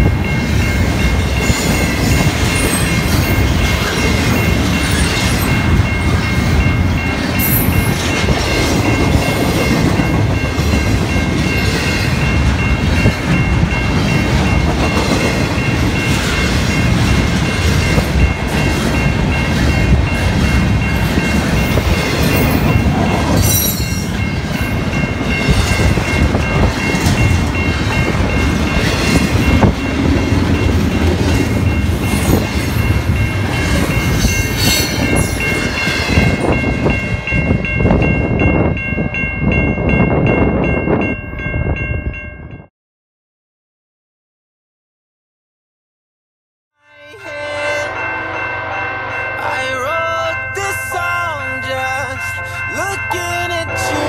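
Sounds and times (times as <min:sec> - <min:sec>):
train wheels rumbling on rails: 0:00.0 - 0:42.0.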